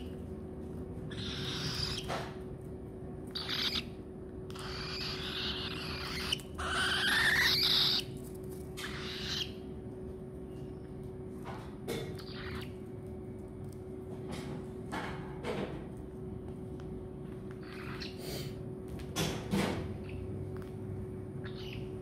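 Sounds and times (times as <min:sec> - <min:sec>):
steady low hum: 0:00.0 - 0:22.0
cockatiels screeching: 0:01.0 - 0:02.4, 0:03.3 - 0:09.7, 0:12.1 - 0:12.8, 0:17.6 - 0:18.6, 0:21.4 - 0:22.0.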